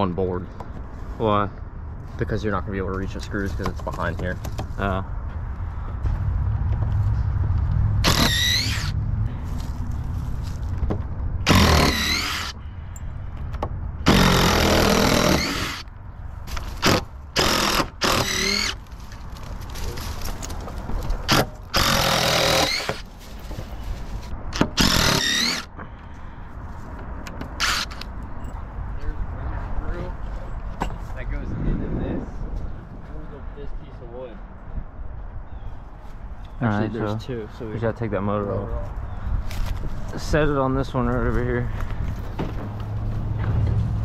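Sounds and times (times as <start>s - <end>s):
cordless drill motor whine: 8.0s - 8.9s, 11.5s - 12.6s, 17.4s - 18.8s, 24.8s - 25.7s, 27.6s - 28.0s
screws squealing in wood: 8.0s - 9.0s, 11.5s - 12.6s, 14.1s - 15.9s, 16.8s - 18.8s, 21.3s - 23.0s, 24.6s - 25.7s, 27.6s - 28.0s.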